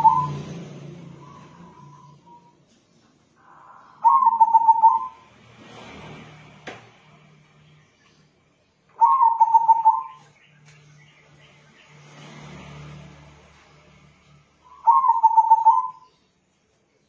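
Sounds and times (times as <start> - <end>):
dove cooing: 0.0 - 0.5, 3.4 - 5.2, 9.0 - 10.2, 14.8 - 16.1.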